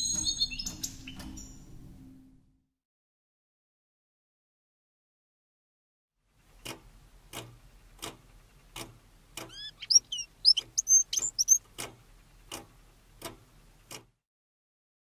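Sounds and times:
even ticking clicks: 6.5 - 14.2
bird singing high quick notes: 9.5 - 11.6.

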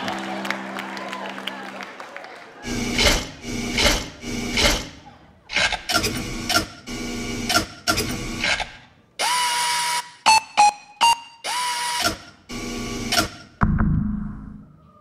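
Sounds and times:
choppy mechanical bursts: 2.6 - 13.6
quick electronic bleeps: 10.3 - 11.5.

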